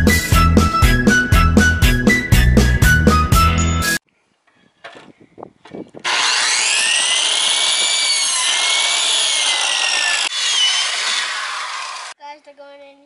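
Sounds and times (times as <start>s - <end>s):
miter saw whining: 6.0s - 12.2s.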